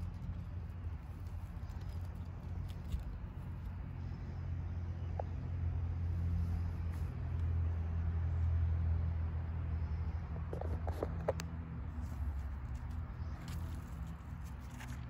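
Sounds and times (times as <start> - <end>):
vehicle engine rumble: 0.0 - 15.0.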